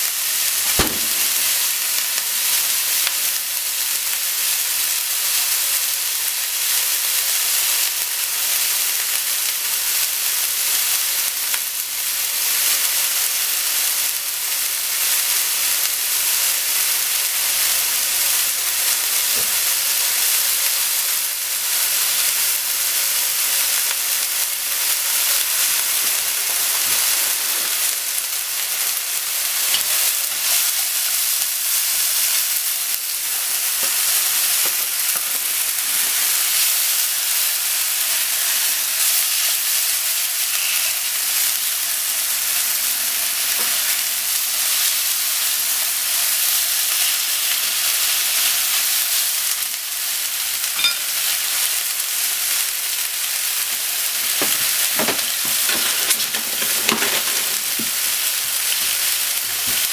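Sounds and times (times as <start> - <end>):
vegetables sizzling in frying pan: 0.0 - 59.9
short sharp clicks: 0.7 - 1.8.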